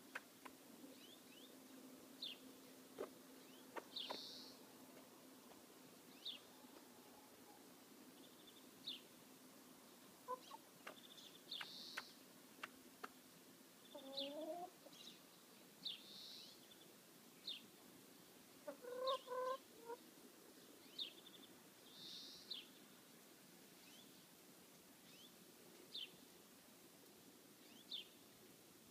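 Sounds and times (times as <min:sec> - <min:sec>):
hen clucking: 0:10.2 - 0:11.0, 0:13.9 - 0:15.0, 0:18.6 - 0:20.0.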